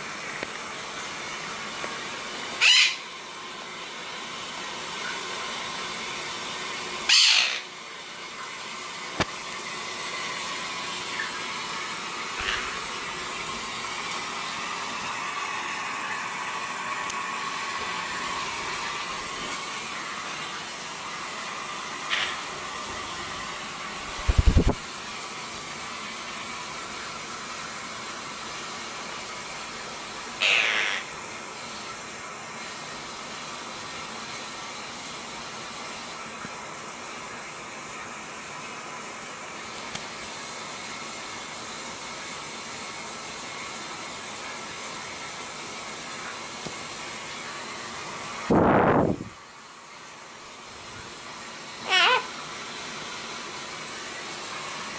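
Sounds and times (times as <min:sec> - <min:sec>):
parrot call: 0:02.6 - 0:03.1, 0:07.1 - 0:07.7, 0:30.4 - 0:31.1, 0:51.8 - 0:52.3.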